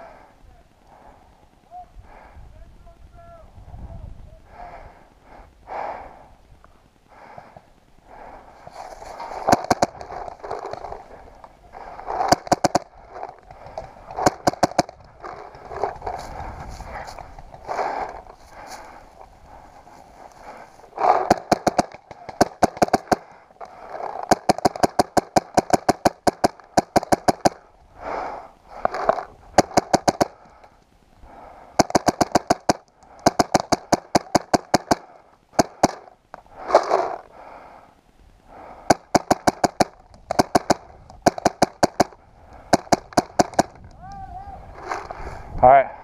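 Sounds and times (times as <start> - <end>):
paintball marker rapid firing: 9.2 - 11.0, 12.1 - 15.9, 21.0 - 27.7, 29.5 - 30.4, 31.8 - 36.1, 38.9 - 43.8.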